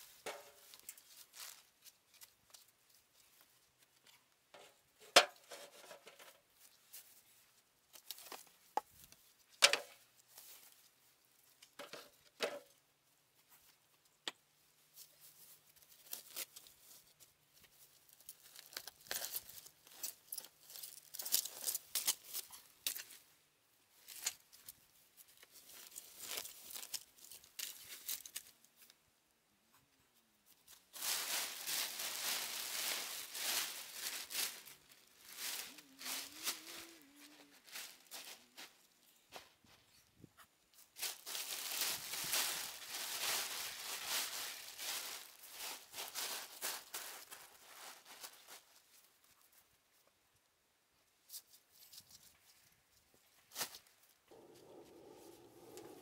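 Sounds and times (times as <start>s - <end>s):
plastic sheeting crinkling: 30.9s - 38.9s, 41.0s - 49.0s.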